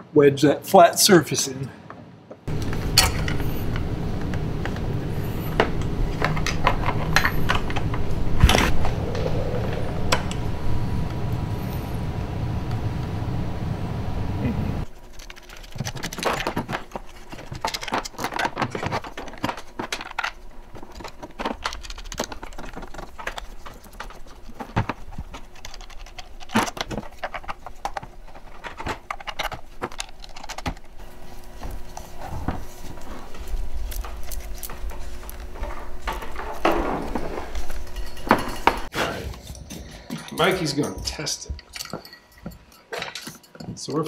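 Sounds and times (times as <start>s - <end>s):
plastic and metal parts clicking: 14.9s - 31.0s.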